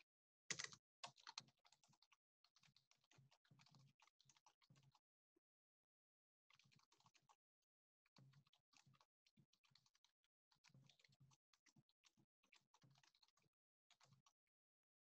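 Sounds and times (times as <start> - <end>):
faint keyboard typing: 0.0 - 5.0.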